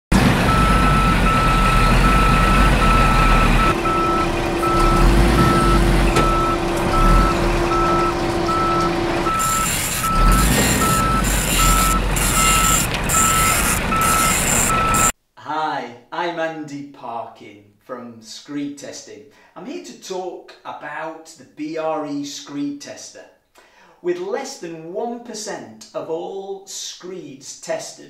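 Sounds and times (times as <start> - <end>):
low engine rumble: 0.1 - 15.1
reversing alarm beeping: 0.5 - 15.1.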